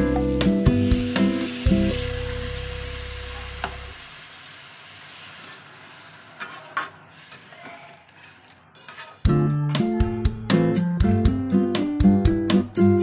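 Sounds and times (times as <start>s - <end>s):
background guitar music: 0.0s - 4.0s, 9.2s - 13.0s
curry sizzling in pan: 0.0s - 9.3s
metal spatula scraping pan: 5.3s - 9.3s.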